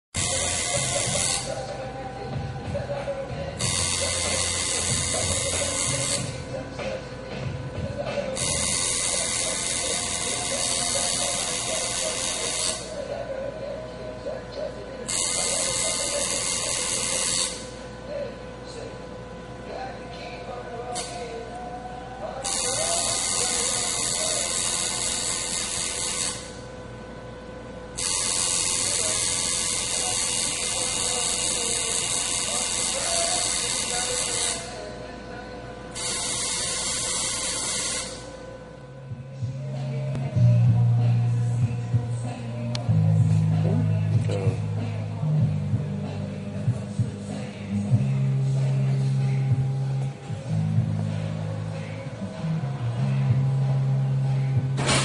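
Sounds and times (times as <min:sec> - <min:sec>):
tattoo machine buzzing: 0:00.2 - 0:01.7, 0:03.6 - 0:06.5, 0:08.3 - 0:13.1, 0:15.0 - 0:17.9, 0:20.9 - 0:21.4, 0:22.4 - 0:26.8, 0:27.9 - 0:34.9, 0:35.9 - 0:38.4.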